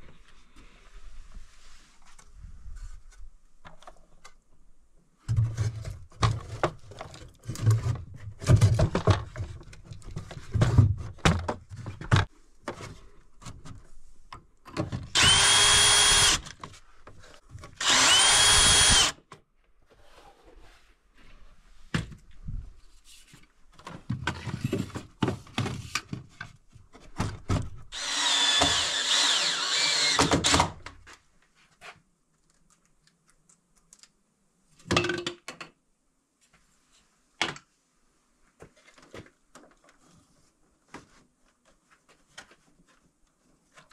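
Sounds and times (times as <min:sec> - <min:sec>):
drill driving screws: 0:15.1 - 0:16.5, 0:17.8 - 0:19.2, 0:27.9 - 0:30.8.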